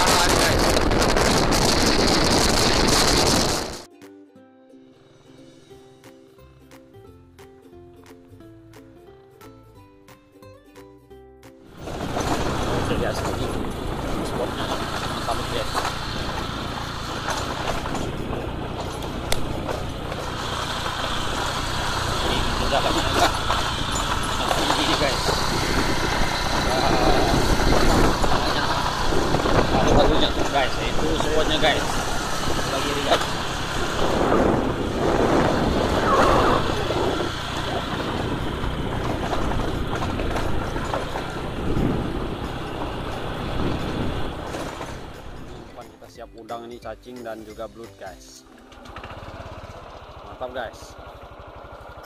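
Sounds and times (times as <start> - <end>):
knocks and rattles from riding: 0.0 - 3.9, 11.7 - 46.0, 48.6 - 52.0
motorcycle engine droning: 0.0 - 3.9, 11.7 - 45.8, 48.5 - 52.0
road and wind noise: 0.0 - 3.9, 11.6 - 52.0.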